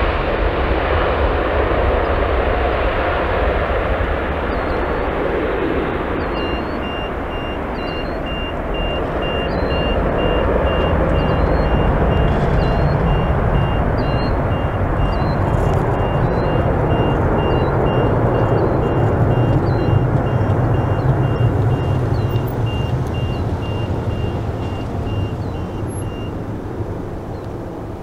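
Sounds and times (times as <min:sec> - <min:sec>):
jet engines roaring: 0:00.0 - 0:28.0
faint high beeping: 0:05.6 - 0:27.4.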